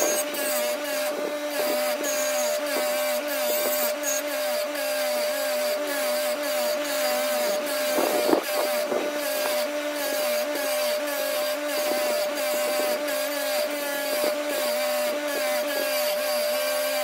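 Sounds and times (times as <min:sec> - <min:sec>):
bench grinder whining: 0:00.0 - 0:17.0
metal grinding against wheel: 0:00.0 - 0:17.0.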